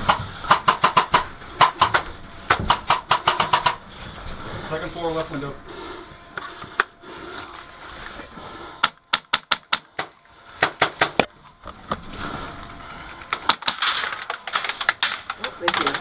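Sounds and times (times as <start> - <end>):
airsoft rifle shots clacking: 0.0 - 3.8.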